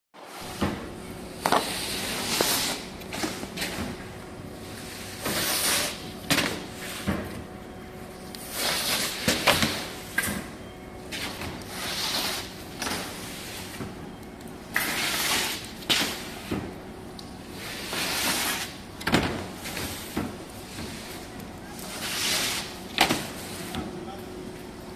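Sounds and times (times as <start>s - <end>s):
wood sheets sliding: 19.7s - 23.8s.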